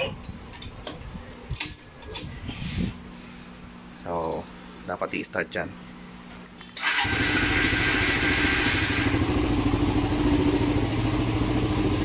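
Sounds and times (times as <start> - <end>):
motorcycle engine idling: 7.1 - 12.0.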